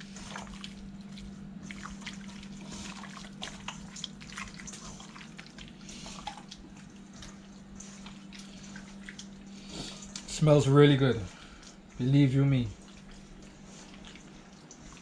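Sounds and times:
hands squishing raw fish: 0.0s - 15.0s
steady low hum: 0.0s - 15.0s.

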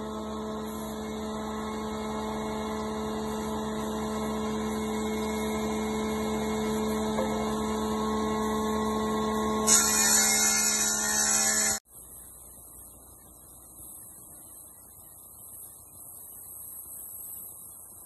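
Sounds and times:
planer cutting wood hissing: 0.0s - 11.8s
planer motor humming: 0.0s - 11.8s.

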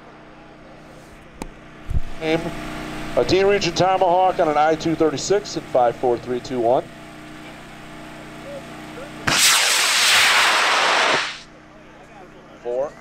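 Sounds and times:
rocket motor rushing: 9.3s - 11.5s.

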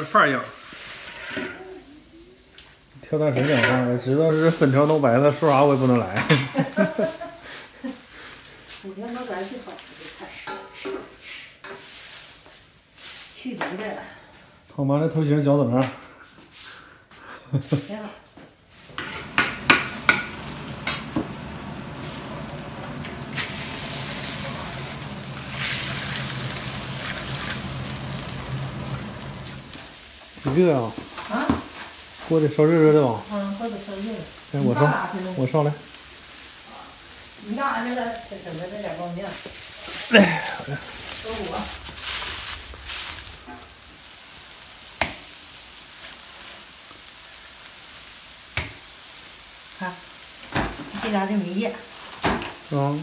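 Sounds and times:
steam hissing: 0.0s - 2.4s, 4.0s - 10.4s, 18.8s - 53.0s
food sizzling in a wok: 0.0s - 14.7s, 16.4s - 53.0s
dough slapping onto wok: 45.0s - 45.3s.

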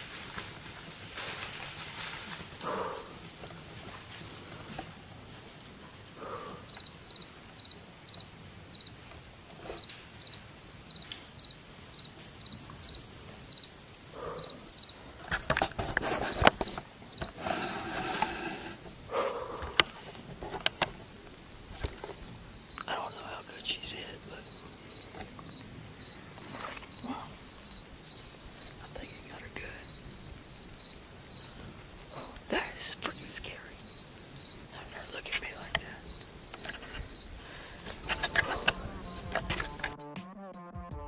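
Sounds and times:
crackling in dry leaves: 0.0s - 6.0s
insect chirping: 0.0s - 40.0s.

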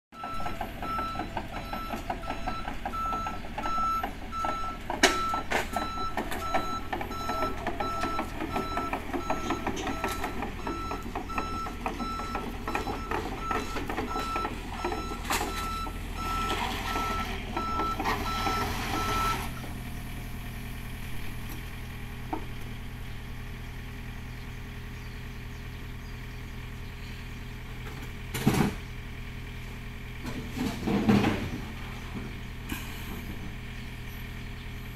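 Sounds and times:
excavator diesel engine running: 0.1s - 34.9s
travel alarm beeping: 0.2s - 19.5s
tracks clanking on ramps: 0.2s - 19.8s, 27.8s - 28.9s, 30.1s - 33.9s.

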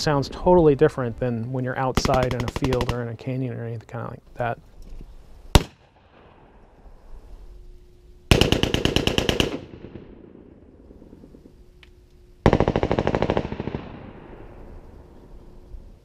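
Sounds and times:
automatic gunfire bursts: 2.0s - 3.0s, 8.3s - 10.1s, 12.4s - 14.0s.

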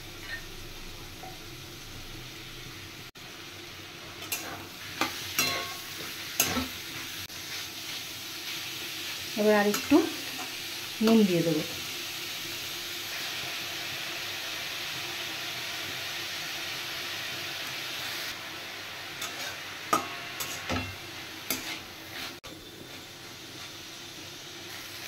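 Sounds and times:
food sizzling in oil: 0.0s - 25.0s
spatula scraping metal pan: 19.2s - 22.4s.

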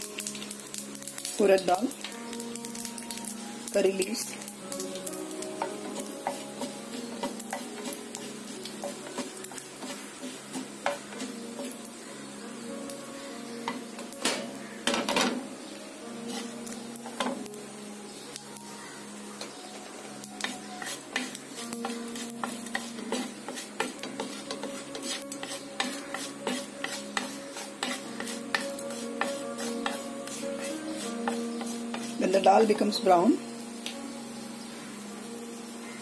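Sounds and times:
seeds sizzling and crackling in oil: 0.0s - 36.0s
spatula scraping a pan: 5.6s - 12.2s, 16.1s - 17.4s, 20.4s - 32.8s.

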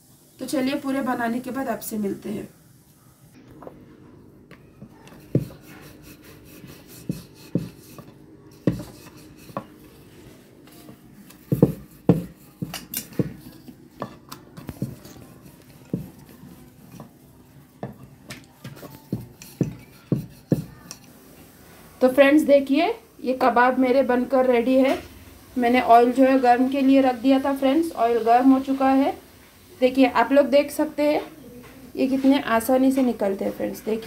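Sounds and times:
knocking on wooden rolling board: 7.1s - 9.7s, 11.5s - 13.4s.

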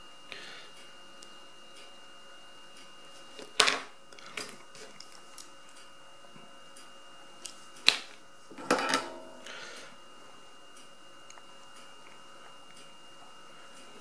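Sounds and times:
tools clattering: 8.5s - 9.3s.

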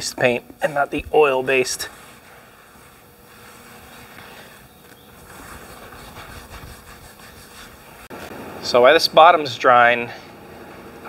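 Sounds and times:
faint background hum: 0.0s - 11.0s
wet rag scrubbing concrete: 0.2s - 8.2s.

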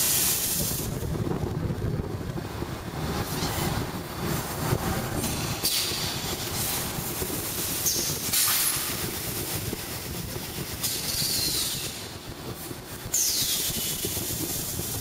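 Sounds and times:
air hiss bursts: 0.0s - 0.9s.

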